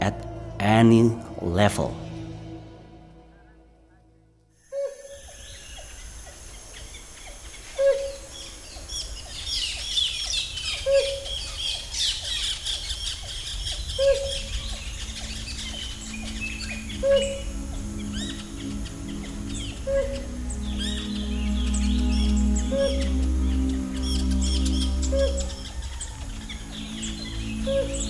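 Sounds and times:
birds chirping and whistling: 4.6 - 28.0
loud low hoot: 13.8 - 28.0.

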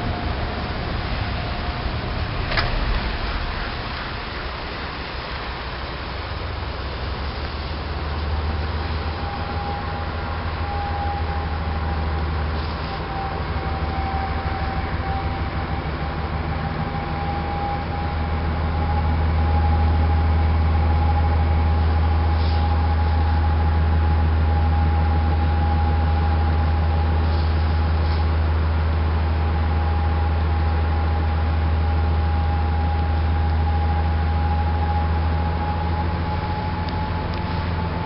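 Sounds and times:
wind and water rushing: 0.0 - 22.3
boat engine drone: 0.0 - 38.0
engine whine: 0.0 - 38.0.

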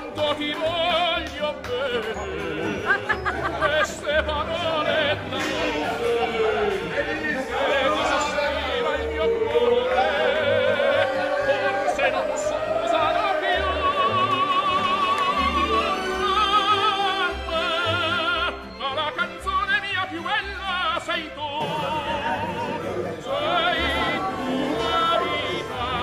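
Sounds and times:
operatic singing with vibrato: 0.0 - 26.0
orchestral accompaniment: 0.0 - 26.0.

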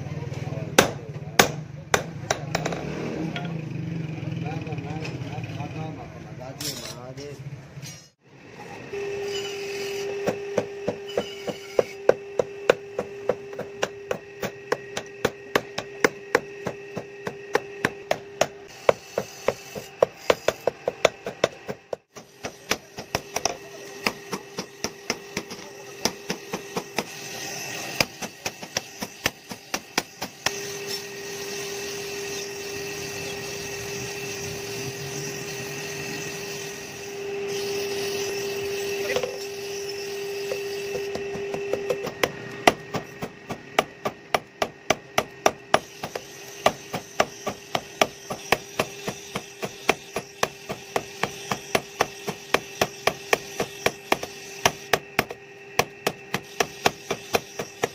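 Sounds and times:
hammer striking steel on anvil: 0.8 - 3.6, 10.0 - 31.0, 40.4 - 57.9
forge blower humming: 7.6 - 57.9.

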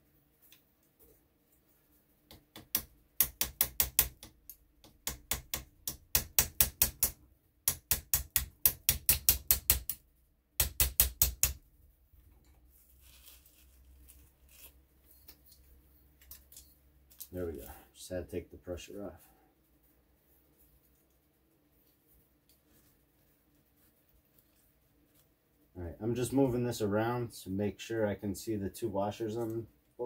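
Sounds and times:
hammer tapping steel punch: 2.3 - 10.0, 10.6 - 11.6.

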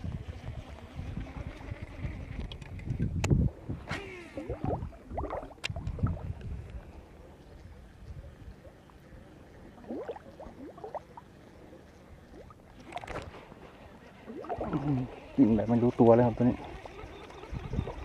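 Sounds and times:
water sloshing and gurgling: 2.4 - 6.7, 9.4 - 18.0.

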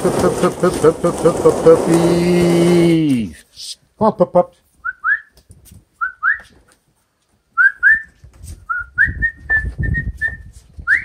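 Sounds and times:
knocking and rustling: 0.0 - 3.2
person whistling double calls: 4.8 - 5.4, 6.0 - 6.6, 7.6 - 11.0.

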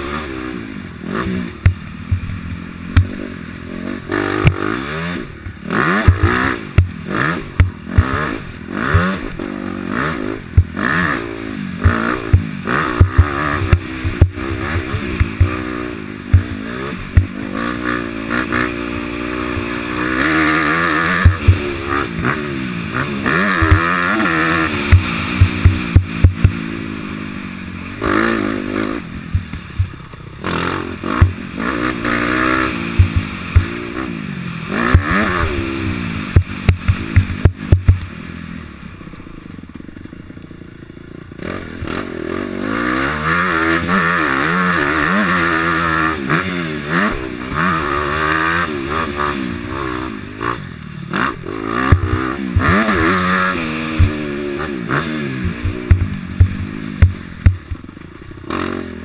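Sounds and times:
dirt bike engine revving: 0.0 - 59.0
sharp thumps: 1.2 - 3.4, 4.2 - 4.7, 5.3 - 9.4, 10.5 - 11.2, 11.8 - 17.6, 18.4 - 26.9, 28.0 - 34.0, 34.9 - 38.1, 51.3 - 58.2.

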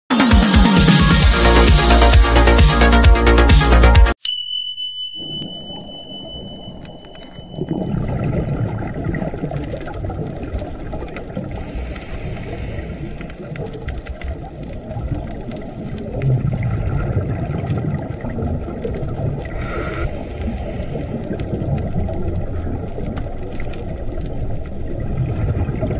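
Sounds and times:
steady high tone: 4.2 - 8.1
muffled underwater rumble: 5.6 - 25.9
divers exhaling bubbles: 7.5 - 25.9
short hiss: 19.6 - 20.3.

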